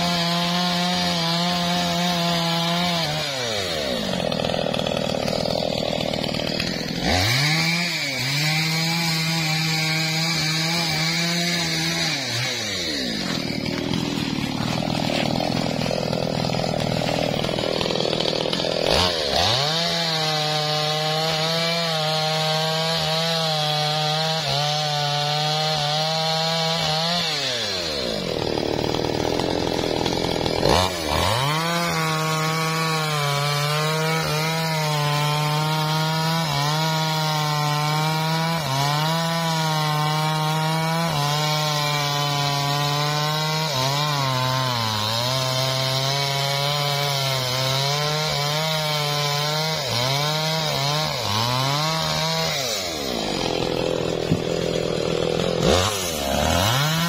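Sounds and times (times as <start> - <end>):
chainsaw sawing wood: 0.0 - 57.0.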